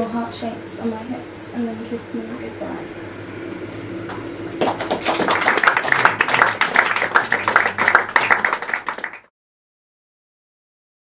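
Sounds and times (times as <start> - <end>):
audience applauding: 4.6 - 9.3.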